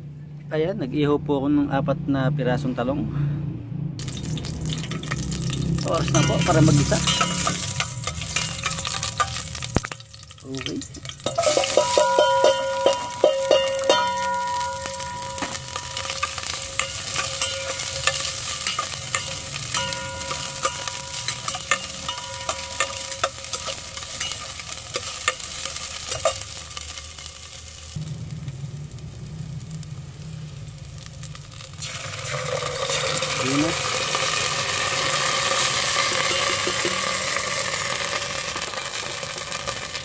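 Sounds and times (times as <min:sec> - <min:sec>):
pot ringing thin tone: 0:04.0 - 0:26.6, 0:31.8 - 0:38.6
onion sizzling in hot oil: 0:04.0 - 0:40.0.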